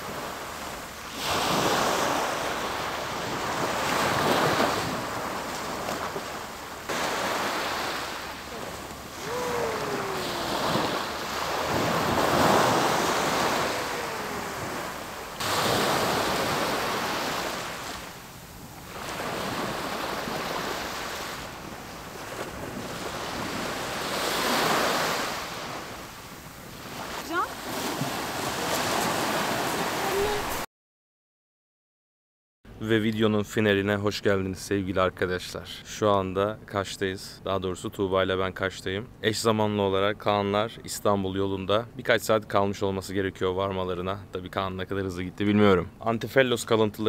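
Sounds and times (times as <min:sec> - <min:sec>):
sea waves washing on shore: 0:00.0 - 0:30.6.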